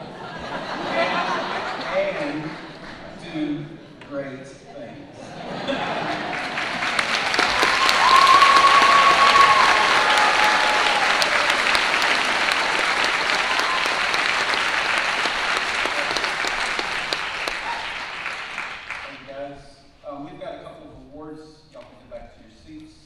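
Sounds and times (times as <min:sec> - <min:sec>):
audience applauding: 0:00.0 - 0:03.2, 0:05.8 - 0:19.3.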